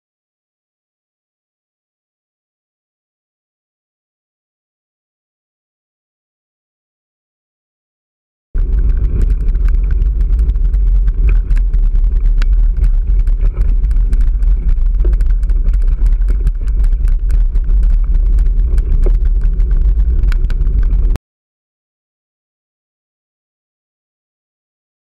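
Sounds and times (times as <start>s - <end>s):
bike rattling on rough pavement: 8.6s - 21.2s
wind rumble on microphone: 8.6s - 21.2s.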